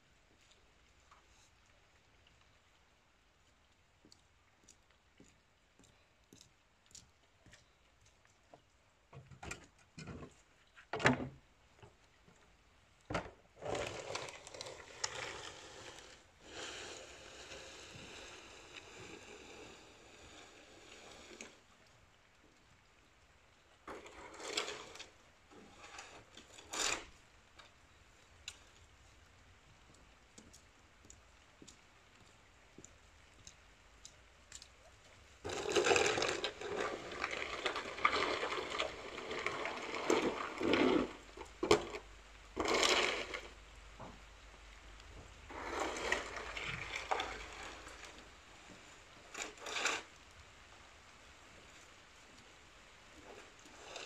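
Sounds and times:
broom sweeping wet concrete: 0:13.9 - 0:21.7, 0:23.9 - 0:27.2, 0:35.4 - 0:42.0, 0:45.4 - 0:50.1.

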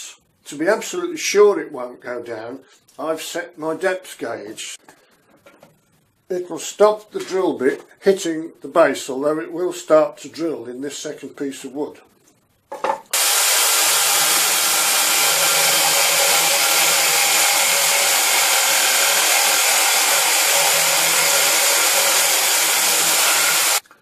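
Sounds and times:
power drill boring wood: 0:13.2 - 0:23.8.

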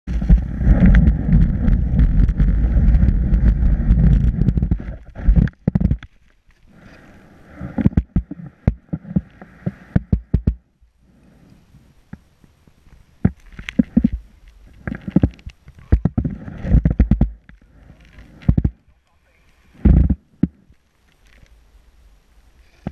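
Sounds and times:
skis scraping over snow: 0:00.1 - 0:05.5
sharp knocks and taps: 0:09.9 - 0:10.6.

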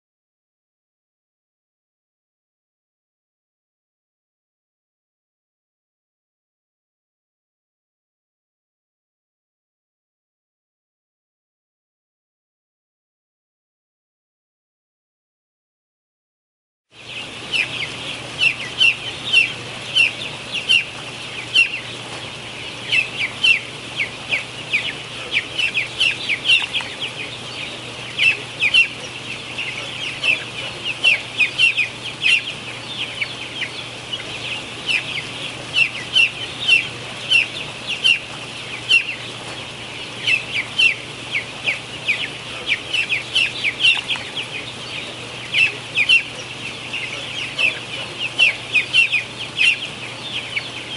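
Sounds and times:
chicks peeping and chirping: 0:17.0 - 0:50.9
steady low hum: 0:17.0 - 0:50.9.

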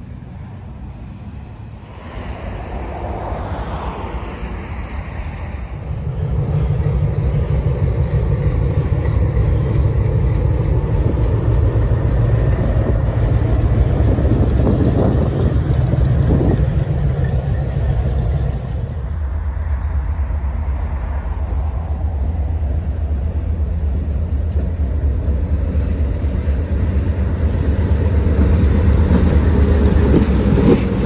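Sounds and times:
diesel locomotive rumbling: 0:00.0 - 0:31.0.

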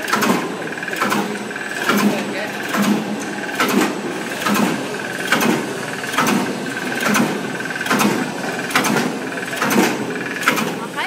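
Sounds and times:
cutting machine clacking: 0:00.0 - 0:11.0
motor hum and whine: 0:00.0 - 0:11.0.

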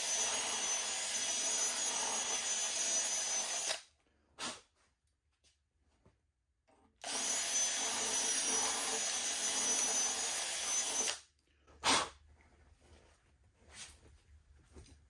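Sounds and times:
cordless drill running: 0:00.0 - 0:03.8, 0:07.0 - 0:11.2.

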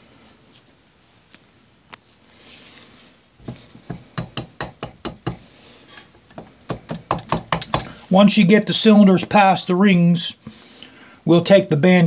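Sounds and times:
soft rubbing hiss: 0:00.0 - 0:04.0
sharp knocks on metal block: 0:03.9 - 0:05.4, 0:06.4 - 0:07.9.

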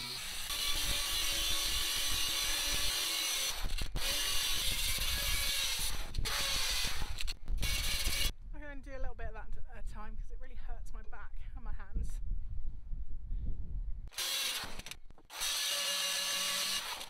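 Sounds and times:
power sander grinding steel: 0:00.0 - 0:08.3.

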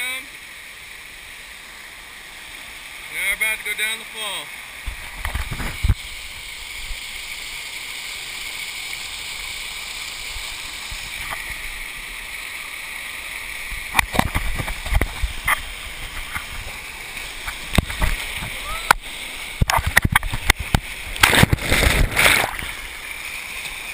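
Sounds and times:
waterfall rushing: 0:10.1 - 0:23.9
thumps and splashes: 0:13.8 - 0:16.8, 0:17.4 - 0:23.0.

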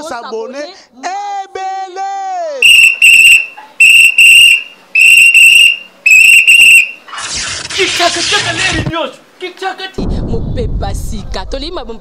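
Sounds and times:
shrill whistle blasts: 0:02.6 - 0:07.1.

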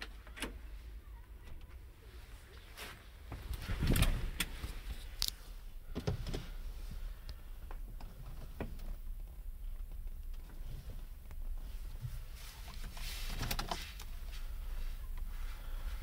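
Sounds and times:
clicks and knocks in car seat: 0:05.9 - 0:06.6, 0:07.6 - 0:14.2.

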